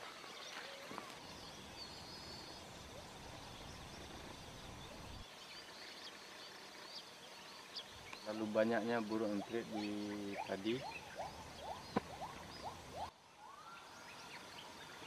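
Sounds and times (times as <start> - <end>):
bird trill: 0.0 - 15.0
small birds chirping: 0.0 - 15.0.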